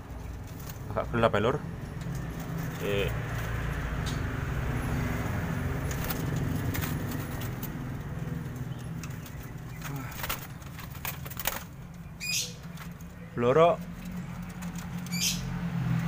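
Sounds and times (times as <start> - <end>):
wing flaps: 5.2 - 13.2.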